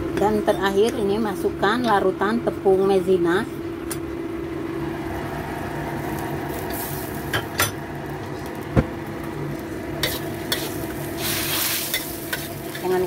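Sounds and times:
steady hum: 0:00.0 - 0:13.0
faint sizzle: 0:04.5 - 0:13.0
spatula stirring in a wok: 0:10.0 - 0:13.0.

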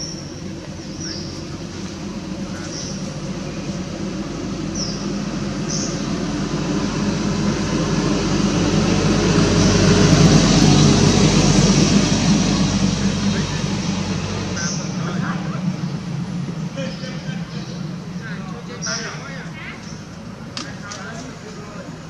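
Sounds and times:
vehicle engine humming: 0:00.0 - 0:22.0.

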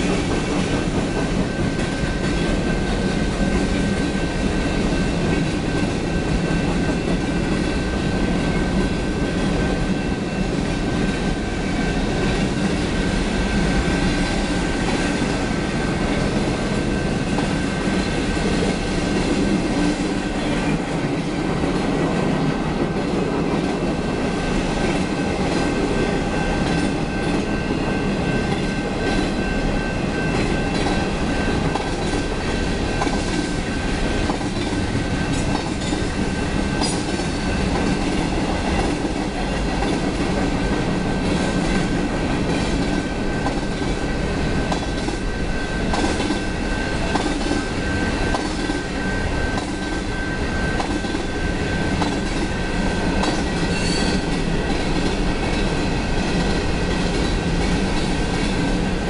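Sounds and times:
train wheels rumbling on rails: 0:00.0 - 0:59.0
high-pitched wheel squeal: 0:53.7 - 0:54.3.

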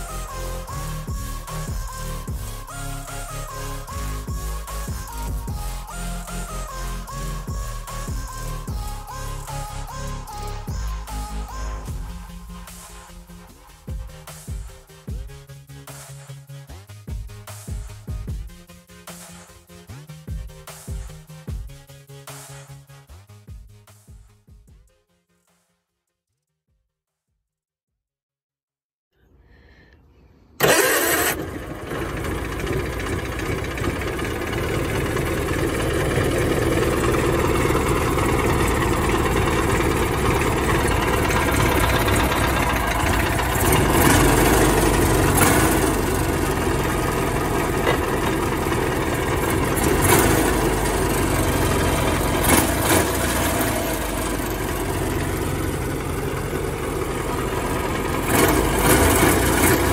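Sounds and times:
engine running: 0:00.0 - 0:15.3, 0:30.6 - 0:59.9.

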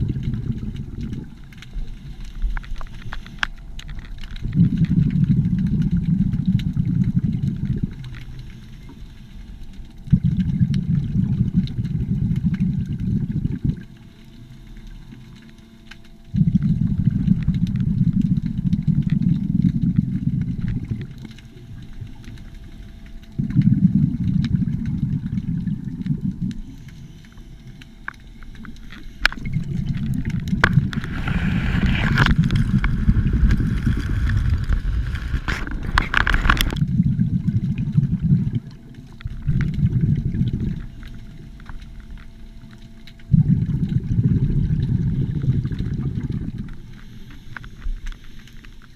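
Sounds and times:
underwater exhaust bubbles: 0:00.0 - 0:48.9
diver inhaling: 0:30.8 - 0:34.8.

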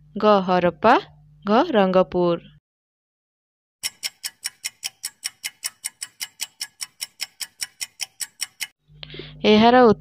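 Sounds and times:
rapid clock ticks: 0:03.8 - 0:08.8.

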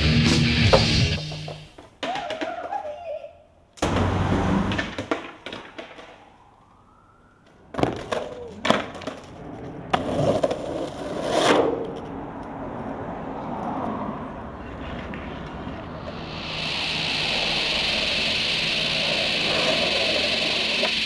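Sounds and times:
skateboard wheels rolling on asphalt: 0:00.0 - 0:03.2, 0:03.8 - 0:21.0
skateboard clacks: 0:00.6 - 0:03.2, 0:04.6 - 0:06.2, 0:07.7 - 0:12.2, 0:14.6 - 0:16.3, 0:17.9 - 0:21.0.

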